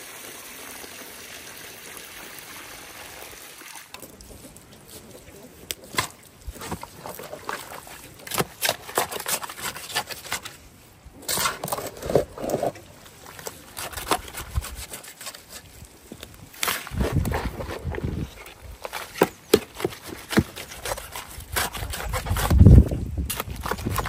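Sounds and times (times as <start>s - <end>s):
wet mud slopping: 4.0s - 10.6s
shovel scraping metal wheelbarrow: 5.8s - 10.6s, 11.2s - 15.8s, 16.5s - 24.0s.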